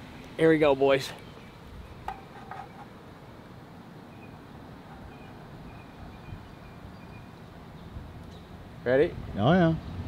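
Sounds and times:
distant traffic hum: 0.0s - 10.0s
faint bird chirps: 4.1s - 8.6s.

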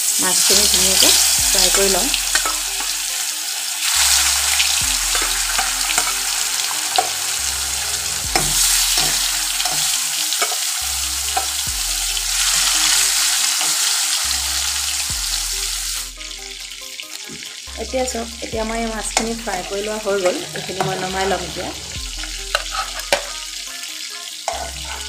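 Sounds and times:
fish sizzling in hot oil: 0.0s - 25.0s
spatula scraping pan: 0.5s - 3.0s, 3.8s - 10.7s, 19.1s - 23.4s, 24.5s - 25.0s.

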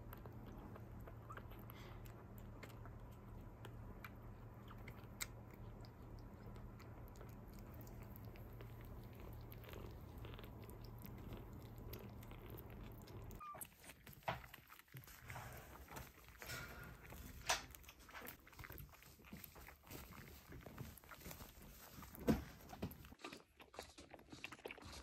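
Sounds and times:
steady low hum: 0.0s - 14.0s
kitten suckling: 0.0s - 25.0s.

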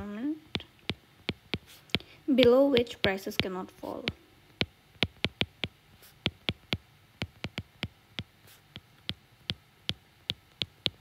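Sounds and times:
stylus tapping on glass screen: 0.5s - 11.0s.

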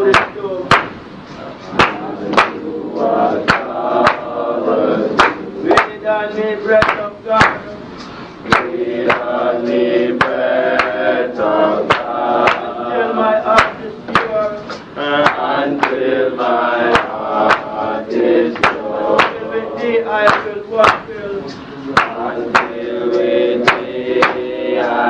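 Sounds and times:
sharp percussion beat: 0.0s - 25.0s
slow sung chant: 0.0s - 25.0s.

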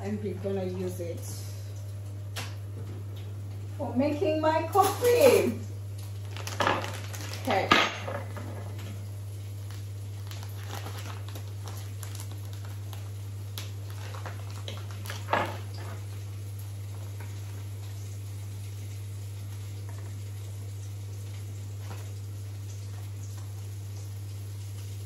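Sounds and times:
steady low hum: 0.0s - 24.5s
paper bag rustling: 6.1s - 16.1s.

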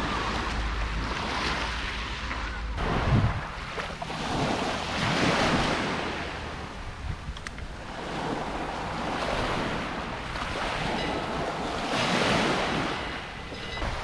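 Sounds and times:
waves washing on pebble beach: 0.0s - 6.9s, 7.7s - 14.0s
wind rumbling on microphone: 0.0s - 14.0s.

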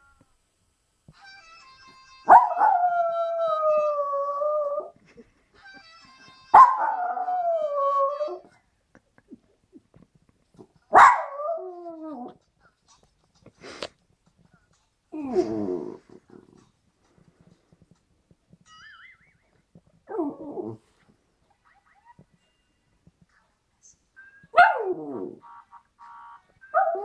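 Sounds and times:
faint phone ringtone: 1.2s - 2.4s.

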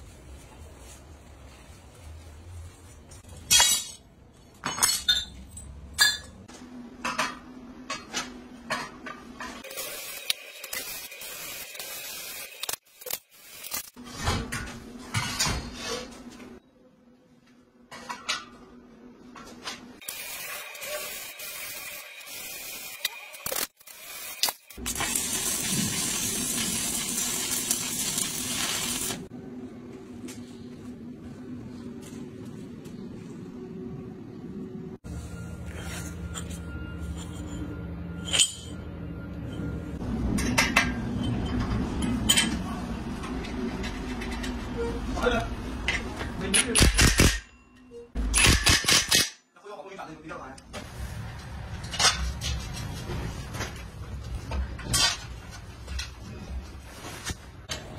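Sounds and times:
electric welding hiss: 9.6s - 14.0s, 20.0s - 29.3s
steel parts clinking on concrete: 37.1s - 38.8s.

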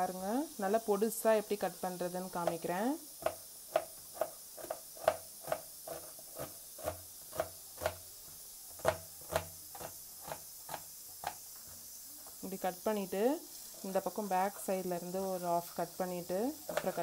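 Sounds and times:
knife slicing onion on board: 2.4s - 11.4s.

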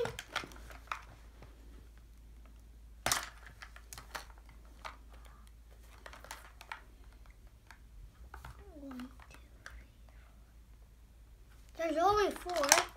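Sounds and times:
plastic toy ball clicking: 12.4s - 12.9s.

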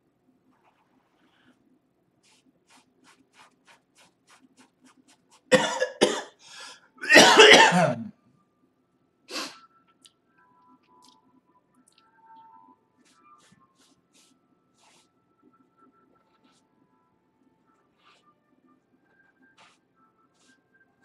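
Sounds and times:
man coughing: 5.5s - 6.4s, 7.0s - 8.1s.

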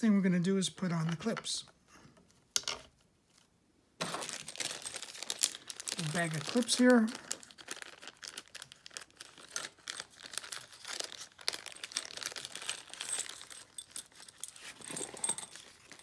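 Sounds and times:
plastic bag crinkling: 4.0s - 16.0s.

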